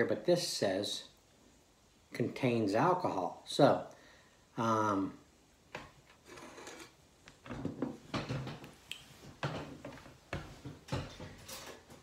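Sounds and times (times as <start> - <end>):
knocks and rustling: 7.4 - 12.0.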